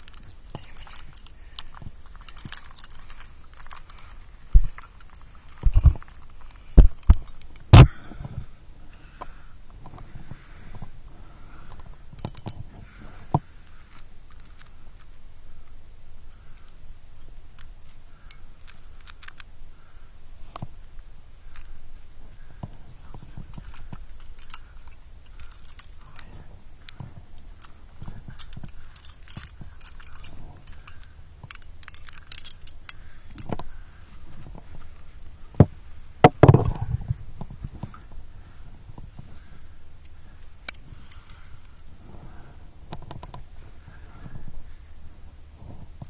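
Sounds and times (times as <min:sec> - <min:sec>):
metallic clatter: 0:00.0 - 0:07.8, 0:23.3 - 0:33.7
carabiners clinking and jangling: 0:00.0 - 0:07.9, 0:11.5 - 0:15.1, 0:17.6 - 0:19.5, 0:21.5 - 0:21.9, 0:22.6 - 0:45.0.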